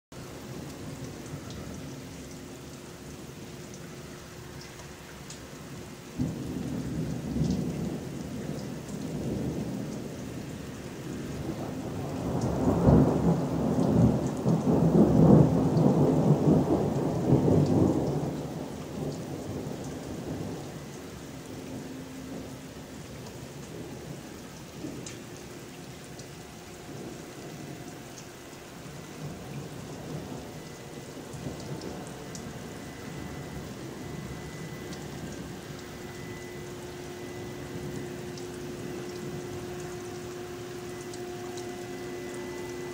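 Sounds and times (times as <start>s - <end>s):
steady rain: 0.1s - 42.9s
thunder rumbling: 5.8s - 42.9s.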